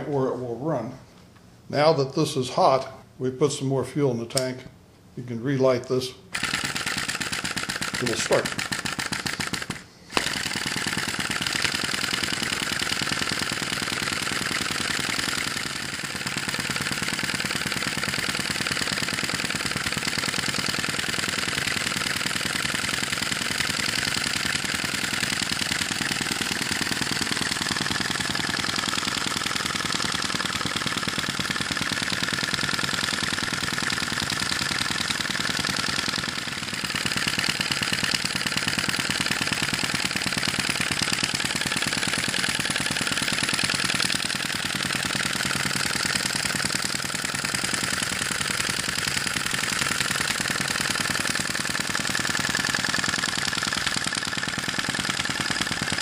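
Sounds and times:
model engine clacking: 6.3 - 56.0.

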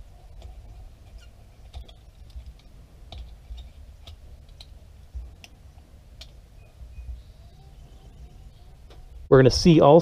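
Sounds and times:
hands clicking and tapping metal: 0.2 - 6.4.

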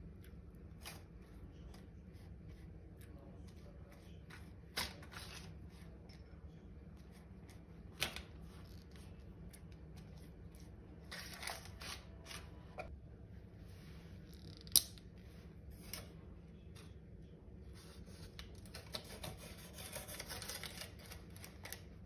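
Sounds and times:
pastry brush dabbing dough: 0.0 - 11.2
parchment paper crinkling: 0.4 - 12.7, 17.8 - 22.0.

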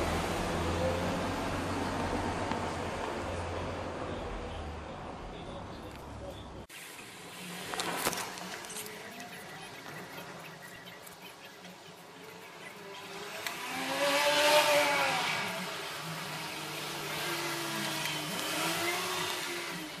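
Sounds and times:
vehicle passing by: 0.0 - 4.9, 12.0 - 20.0.

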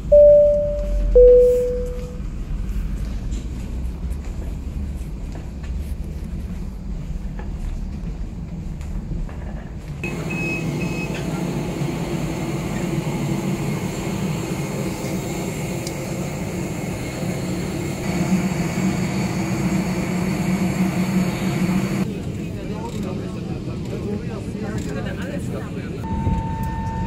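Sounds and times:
short high beeps: 0.0 - 2.2
aircraft and machinery drone: 9.3 - 26.0.

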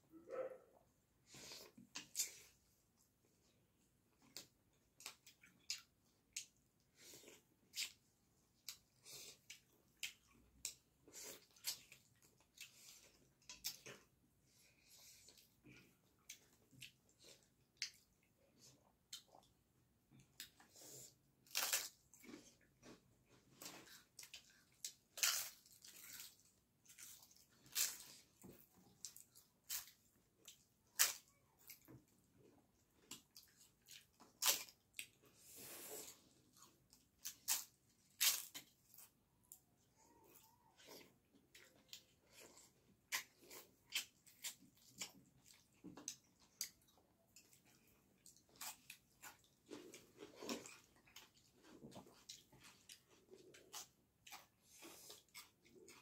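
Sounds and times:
crunching crisp food: 20.2 - 56.0
wet chewing: 40.1 - 56.0.

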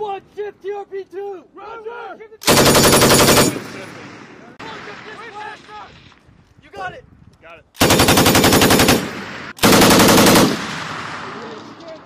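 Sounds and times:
machine gun bursts: 2.4 - 3.8, 7.8 - 10.7
gunfire echo: 2.4 - 5.7, 7.8 - 12.0.

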